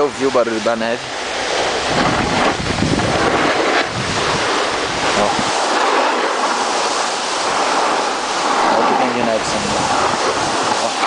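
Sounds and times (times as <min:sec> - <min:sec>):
sliding on snow hiss: 0:00.0 - 0:11.0
wind rushing over microphone: 0:00.0 - 0:11.0.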